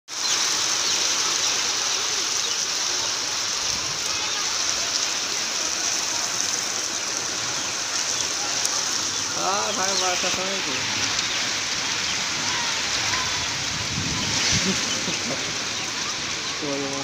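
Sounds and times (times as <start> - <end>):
heavy rain pouring: 0.1 - 17.0.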